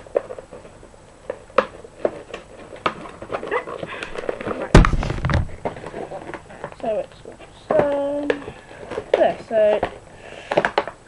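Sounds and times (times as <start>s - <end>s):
loud thump: 4.7s - 5.6s.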